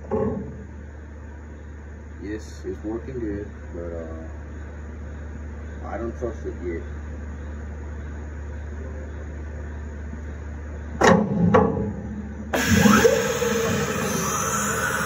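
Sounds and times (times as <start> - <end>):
machine clunk: 0.0 - 0.7, 11.0 - 14.4
machinery humming: 0.0 - 15.0
compressed air hissing: 12.6 - 15.0
motor sweeps: 12.6 - 15.0.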